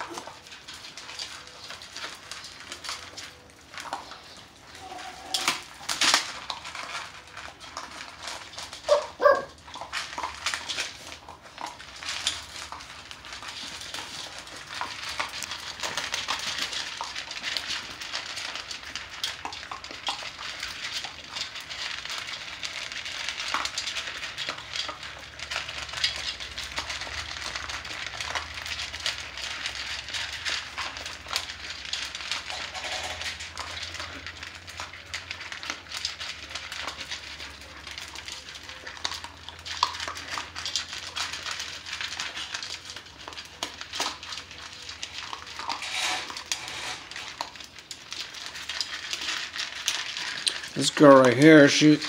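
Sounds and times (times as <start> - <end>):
puppies crunching dry kibble: 0.0 - 52.0.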